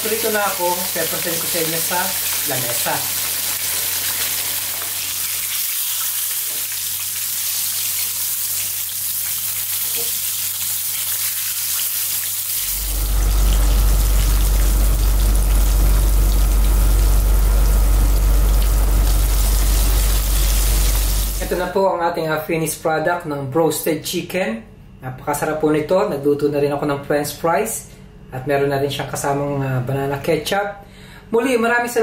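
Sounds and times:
chicken deep-frying in oil: 0:00.0 - 0:21.6
low rumble: 0:12.7 - 0:21.5.

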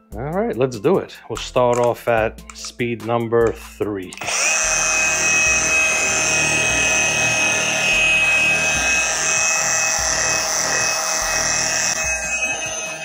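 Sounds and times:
polisher motor whine: 0:04.2 - 0:13.0.

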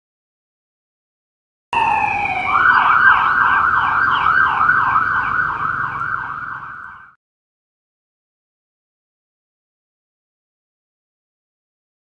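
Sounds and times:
low road rumble: 0:01.8 - 0:07.2
police siren wailing and yelping: 0:01.8 - 0:07.2.

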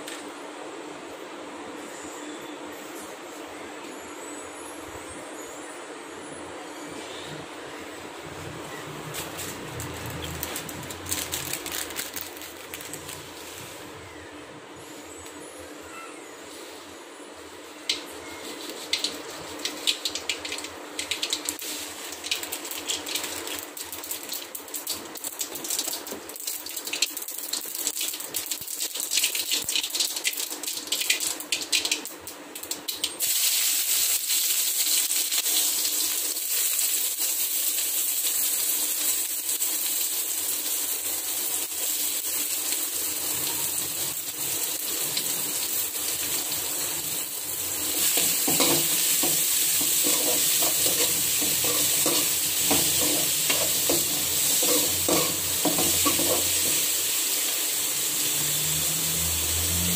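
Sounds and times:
oil crackling and sizzling: 0:09.1 - 0:13.9, 0:17.9 - 0:59.9.

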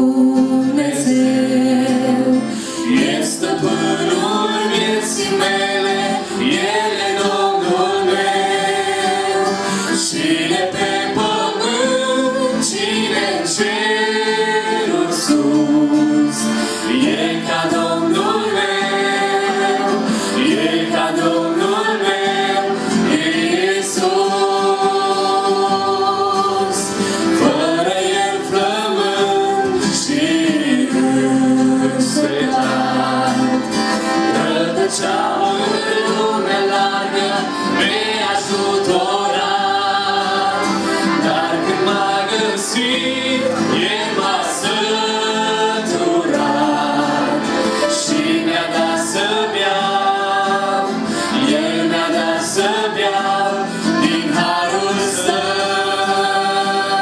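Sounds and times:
acoustic guitar: 0:00.0 - 0:57.0
group singing in harmony: 0:00.0 - 0:57.0
keyboard: 0:00.0 - 0:57.0.

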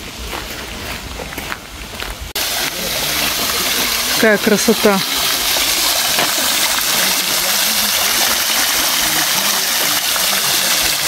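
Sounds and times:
fountain water splashing: 0:02.4 - 0:11.0.

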